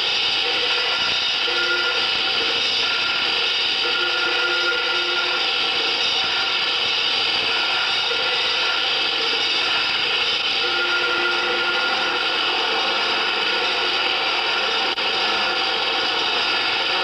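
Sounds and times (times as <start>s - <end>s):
dense wall of industrial noise: 0.0s - 17.0s
faint held tones: 0.7s - 8.8s.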